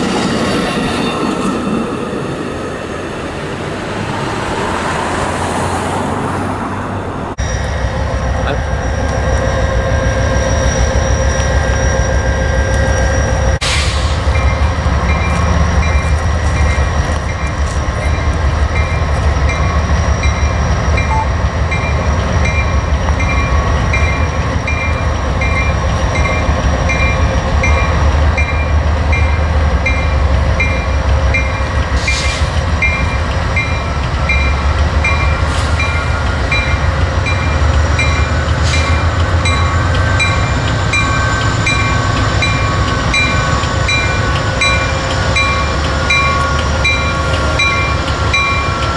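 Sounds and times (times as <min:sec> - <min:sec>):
locomotive engine rumbling: 0:02.0 - 0:48.9
locomotive bell ringing: 0:14.2 - 0:48.9.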